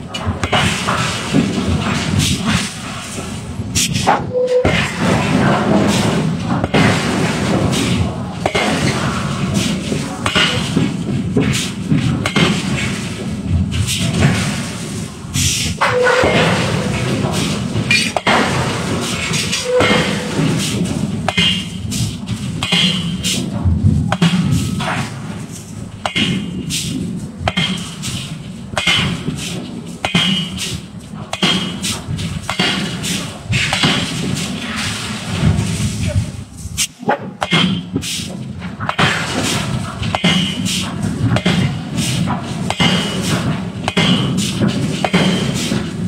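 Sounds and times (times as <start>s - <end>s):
heavy metal thuds and clanks: 0.0s - 46.0s
machinery rumble: 0.0s - 46.0s
metal-on-metal strikes ringing: 17.9s - 21.9s, 26.0s - 30.7s, 37.1s - 38.0s, 40.1s - 40.8s, 42.7s - 44.4s.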